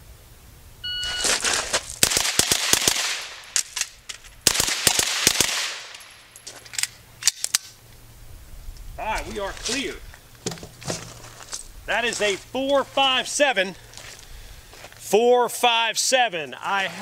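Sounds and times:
shot timer beep: 0.8 - 1.4
carbine firing fast pairs: 2.0 - 3.6, 4.4 - 6.0.

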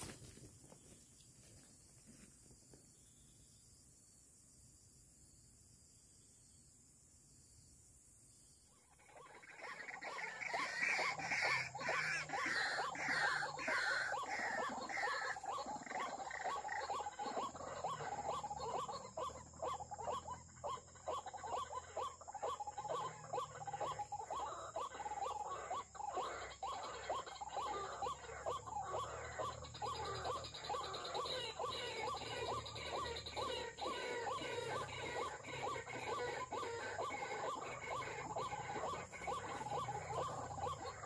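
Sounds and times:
bird croaking calls: 8.7 - 41.0.

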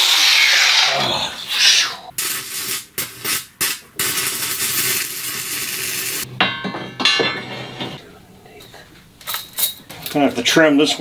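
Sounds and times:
welding arc crackling and hissing: 1.5 - 6.3.

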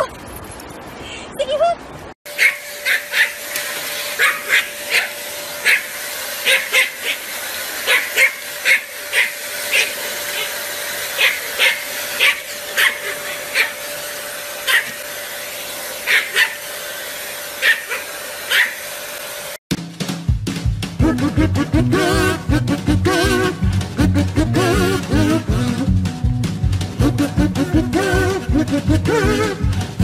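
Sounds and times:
small dog yapping: 2.3 - 3.4, 4.0 - 7.2, 7.8 - 10.6, 11.2 - 13.8, 14.6 - 15.0, 16.0 - 16.6, 17.6 - 18.8
vacuum cleaner humming: 2.3 - 19.6.

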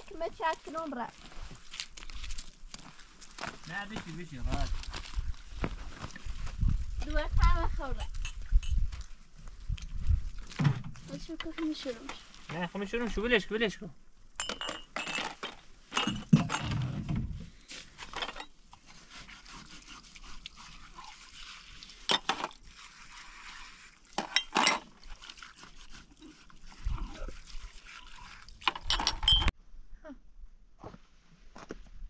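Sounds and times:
metal pots and utensils clinking: 14.4 - 16.8, 22.1 - 22.5, 24.2 - 24.9, 28.7 - 29.5.

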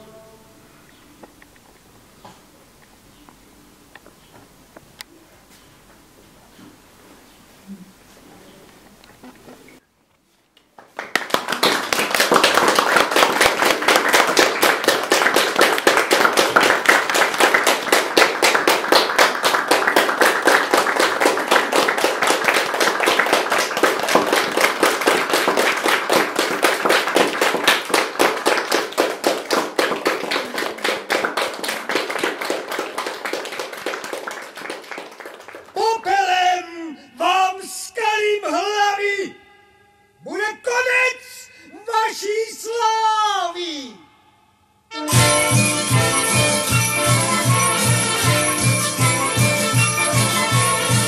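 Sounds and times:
audience applauding: 10.8 - 36.0.

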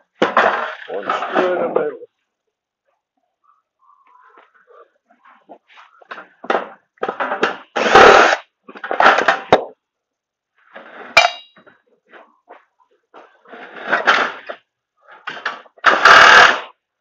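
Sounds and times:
sharp metallic clink: 11.2 - 11.6.

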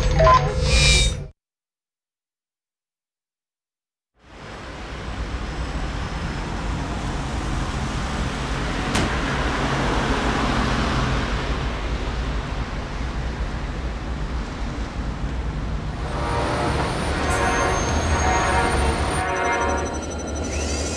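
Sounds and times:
low traffic rumble: 4.3 - 20.4.

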